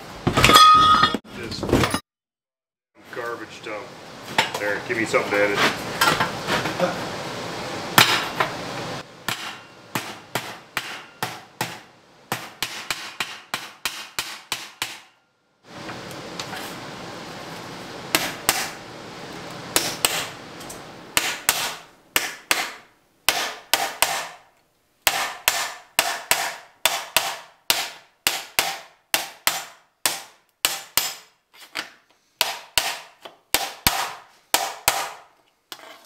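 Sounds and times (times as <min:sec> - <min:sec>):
hammer striking sheet metal: 0:08.0 - 0:08.5, 0:09.3 - 0:15.2, 0:18.1 - 0:18.8, 0:19.8 - 0:20.3.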